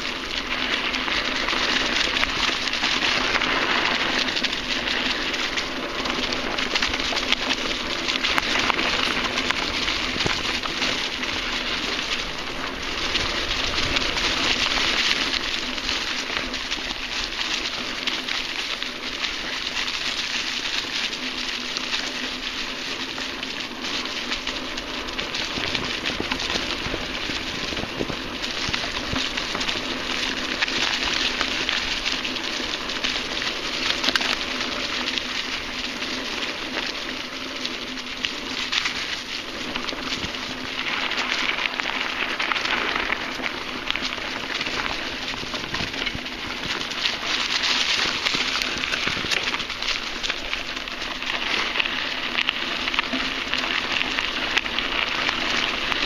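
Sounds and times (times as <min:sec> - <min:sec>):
bike tyres rolling over dry leaves: 0:00.0 - 0:56.0.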